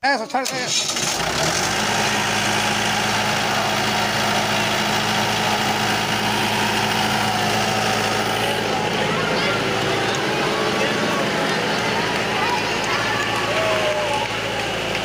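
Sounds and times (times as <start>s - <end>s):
generator engine starting and running: 0.1s - 15.0s.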